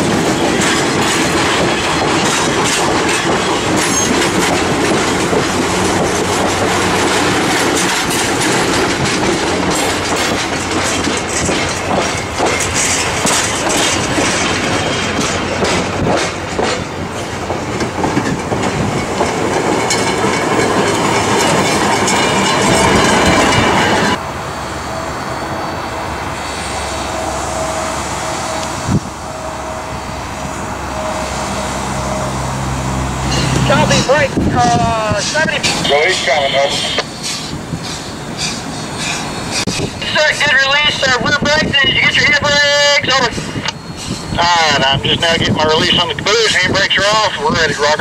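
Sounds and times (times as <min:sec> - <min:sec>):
train wheels clicking over rail joints: 0:00.0 - 0:24.2, 0:33.1 - 0:41.7, 0:42.5 - 0:44.4
steady rumble: 0:00.0 - 0:24.6
wheel squeal: 0:43.4 - 0:44.8.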